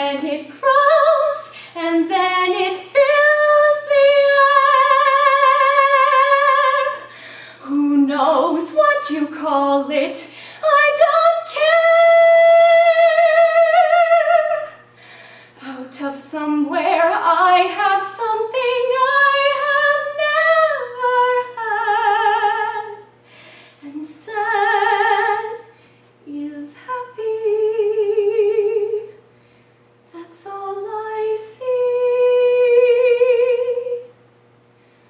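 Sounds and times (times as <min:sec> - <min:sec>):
woman singing unaccompanied: 0:00.0 - 0:14.8, 0:15.6 - 0:23.1, 0:23.8 - 0:29.2, 0:30.1 - 0:34.2
singer breathing: 0:01.5 - 0:01.8, 0:07.1 - 0:07.6, 0:10.3 - 0:10.6, 0:14.9 - 0:15.6, 0:23.2 - 0:23.8, 0:29.3 - 0:29.9.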